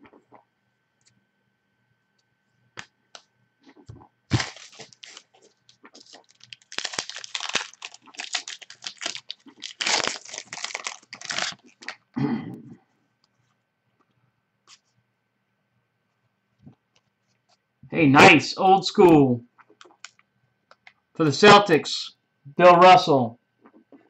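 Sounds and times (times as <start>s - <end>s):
foil wrapper crinkling: 4.3s - 12.1s.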